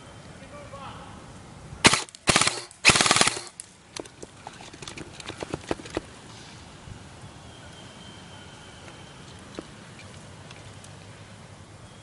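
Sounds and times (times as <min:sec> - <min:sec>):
airsoft rifle full-auto bursts: 0:01.8 - 0:03.6.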